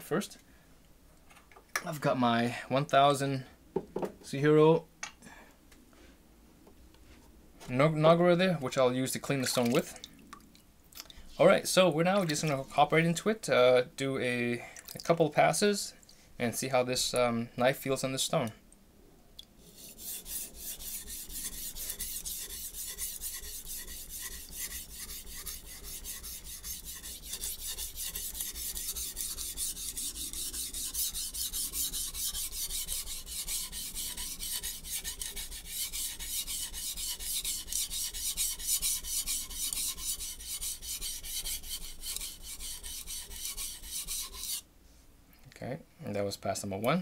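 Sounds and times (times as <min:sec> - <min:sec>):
knife scraping on sharpening stone: 0:19.7 - 0:44.6.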